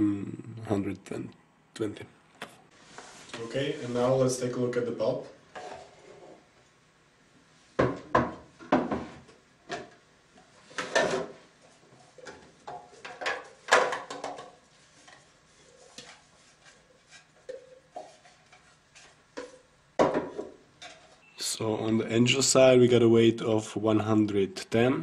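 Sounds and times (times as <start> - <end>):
containers and bowls clattering: 10.6 - 21.3.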